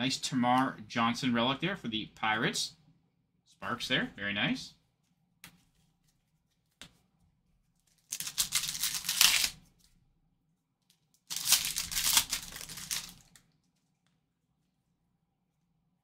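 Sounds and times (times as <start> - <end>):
foil wrapper tearing: 7.9 - 9.6, 11.2 - 13.5.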